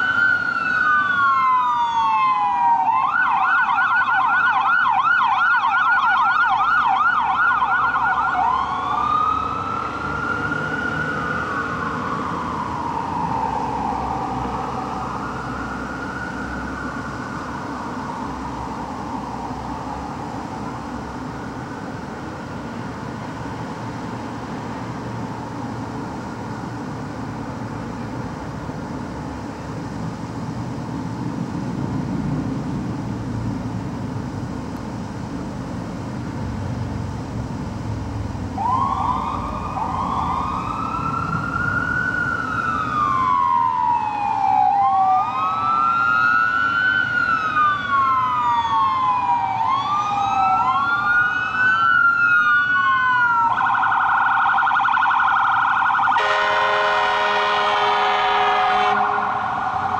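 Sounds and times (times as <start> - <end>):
electronic sirens wailing: 0.0 - 20.2, 38.6 - 59.9
fire truck engines rumbling: 0.0 - 59.9.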